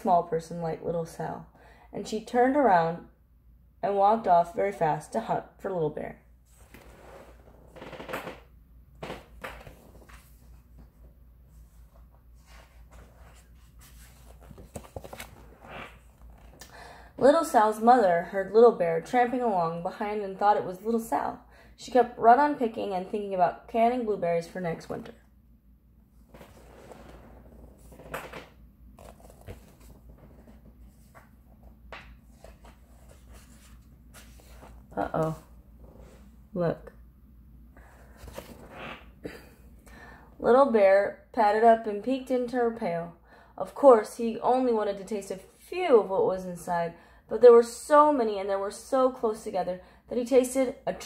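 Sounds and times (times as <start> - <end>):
room hum: 0.0 - 51.0
book pages rustling: 9.4 - 16.6, 26.3 - 35.4, 38.1 - 39.0.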